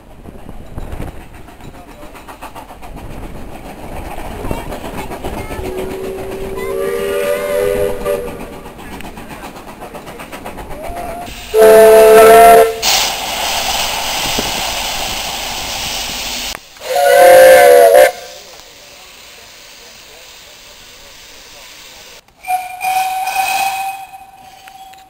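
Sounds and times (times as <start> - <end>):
steam hissing: 0.9 - 24.9
steam locomotive whistle: 5.7 - 8.5, 11.0 - 13.0, 16.8 - 18.4, 22.4 - 25.0.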